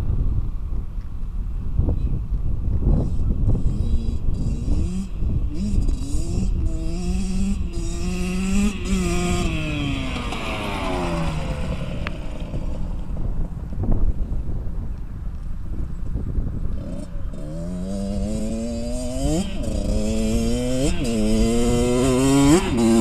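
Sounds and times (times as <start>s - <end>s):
dirt bike engine revving: 3.5s - 13.7s, 16.7s - 23.0s.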